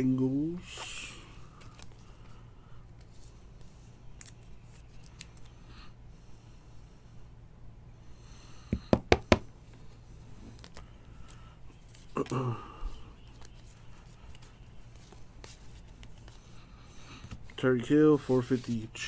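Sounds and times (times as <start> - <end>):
cards and plastic handled: 1.4 - 5.6, 9.7 - 19.0.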